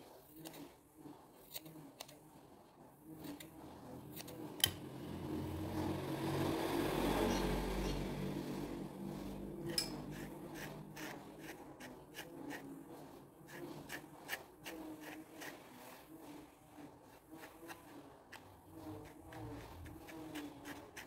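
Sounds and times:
scissors snipping yarn: 0:01.4 - 0:02.2, 0:03.2 - 0:04.9, 0:09.6 - 0:12.7, 0:13.4 - 0:15.6, 0:17.4 - 0:21.0.

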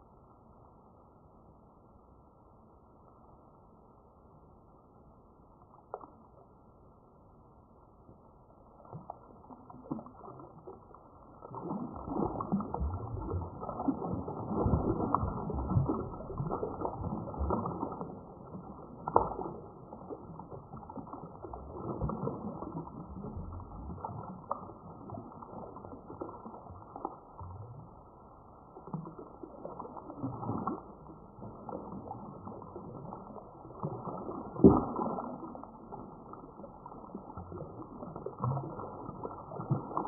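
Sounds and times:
fish splashing in water: 0:08.7 - 0:27.8.

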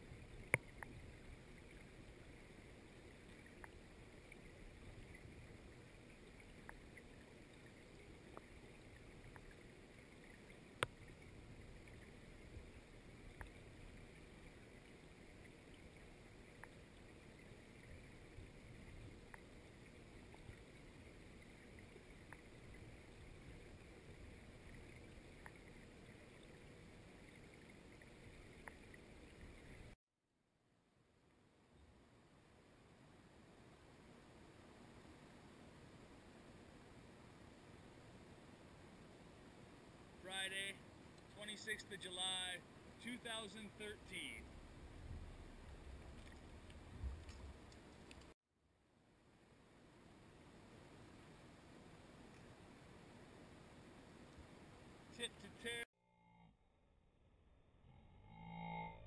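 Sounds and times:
faint ticks: 0:00.0 - 0:30.0, 0:46.0 - 0:48.4
muffled underwater river rumble: 0:44.4 - 0:47.7.

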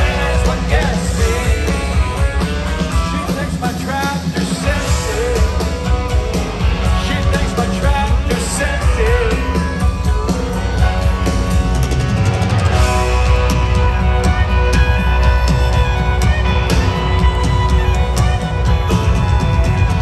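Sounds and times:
man singing: 0:00.0 - 0:10.5
live country band playing: 0:00.0 - 0:20.0.

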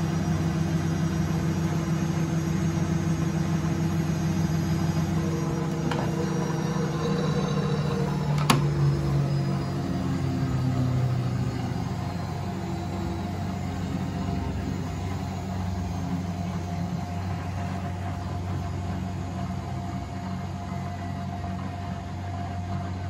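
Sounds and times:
washing machine humming: 0:00.0 - 0:23.0.

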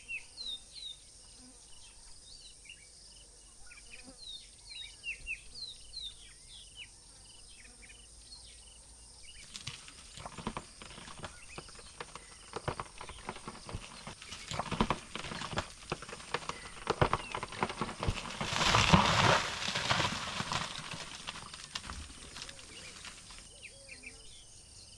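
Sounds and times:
insects buzzing: 0:00.0 - 0:24.9
birds chirping: 0:09.2 - 0:24.9
crash of breaking branches: 0:09.4 - 0:23.5
tree wood creaking and cracking: 0:09.4 - 0:23.5.

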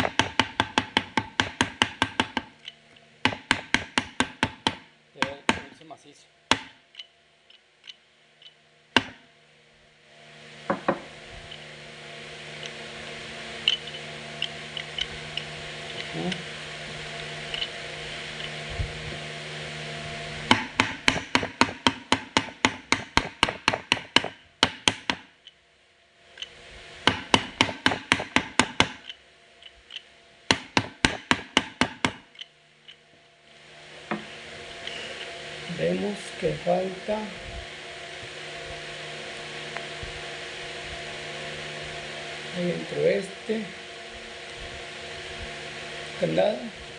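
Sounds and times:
rapid metallic clicks and knocks: 0:00.0 - 0:05.8.

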